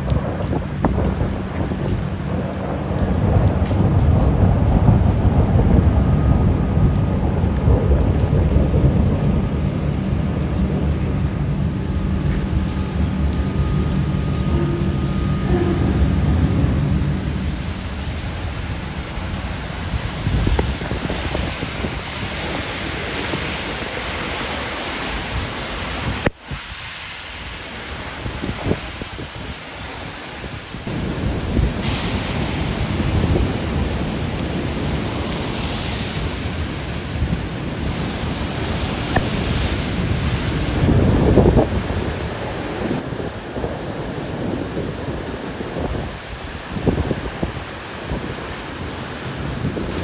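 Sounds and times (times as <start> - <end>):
low rumble: 0.0 - 24.2
rain falling: 0.0 - 50.0.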